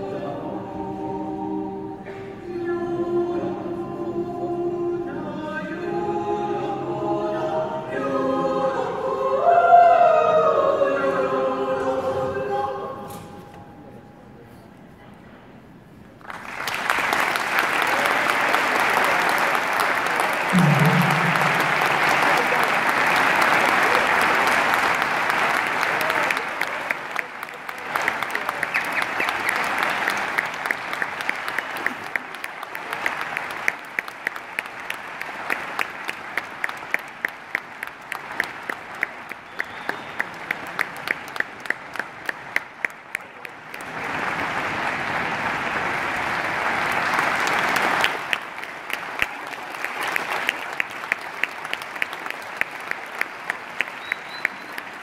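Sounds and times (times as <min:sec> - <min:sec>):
crowd clapping in time: 0:16.2 - 0:55.0.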